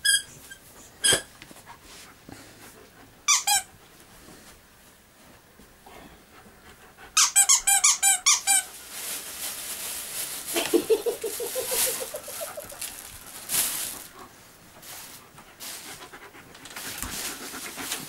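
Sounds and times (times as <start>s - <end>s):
squeaky toy squeaking: 0.0s - 1.3s, 3.3s - 3.7s, 7.2s - 8.7s
plastic bag rustling: 8.4s - 16.0s.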